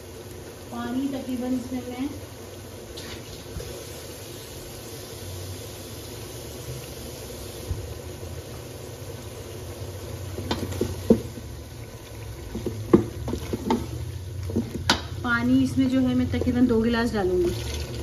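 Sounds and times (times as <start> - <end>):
food sizzling in steel pot: 0.0 - 18.0
wooden spoon scraping pot: 12.3 - 15.0.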